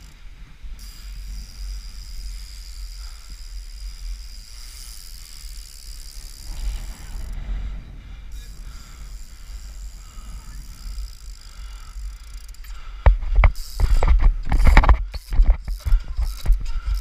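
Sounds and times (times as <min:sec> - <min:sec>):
wind rumble on microphone: 0:00.0 - 0:17.0
tyres rolling over paving: 0:06.2 - 0:11.6.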